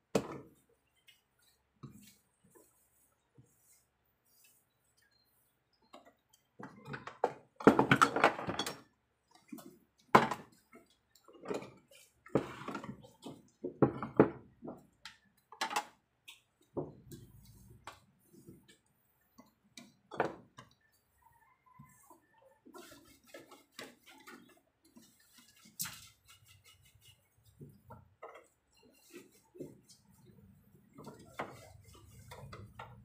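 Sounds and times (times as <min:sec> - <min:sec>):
cookware and utensils clattering: 0:06.6 - 0:08.9.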